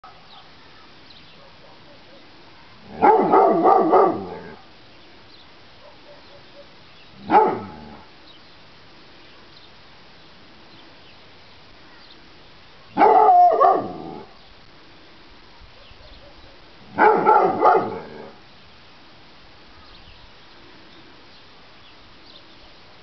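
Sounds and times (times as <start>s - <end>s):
dog barking: 1.4s - 2.3s, 2.9s - 4.6s, 5.8s - 8.0s, 13.0s - 14.3s, 15.8s - 18.3s.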